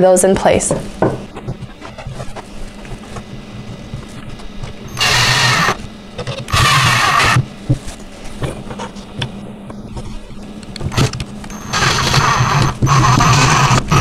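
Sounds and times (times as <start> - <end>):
cordless drill driving screws: 4.9 - 5.8, 6.4 - 7.4, 10.9 - 14.0.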